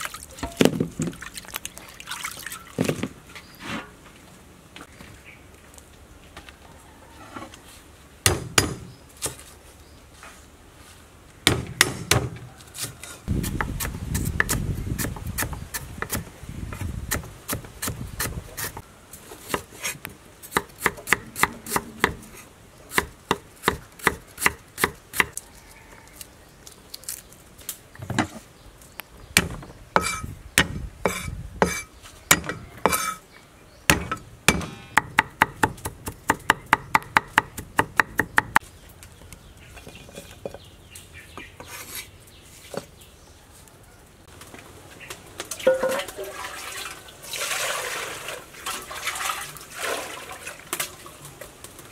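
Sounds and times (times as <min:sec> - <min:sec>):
cleaver chopping on wooden board: 0:08.2 - 0:08.9, 0:11.4 - 0:18.8, 0:29.4 - 0:33.2, 0:33.9 - 0:38.6.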